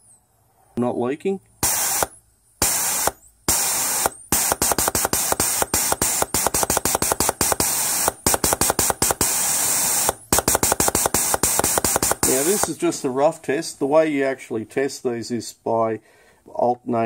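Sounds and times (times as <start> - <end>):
air hissing: 1.6 - 13.1.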